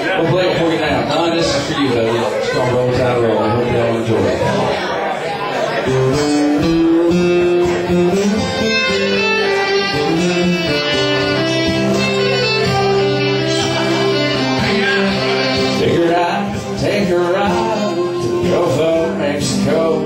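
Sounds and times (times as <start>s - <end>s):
country band playing: 0.0s - 20.0s.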